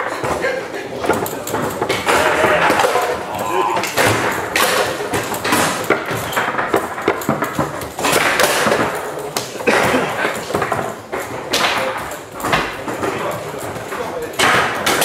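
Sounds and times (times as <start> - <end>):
foosball clacks and knocks: 0.0 - 15.0.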